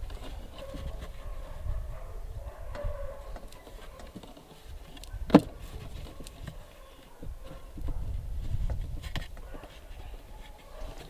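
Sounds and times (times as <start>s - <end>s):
hands handling boat hull: 3.3s - 11.0s.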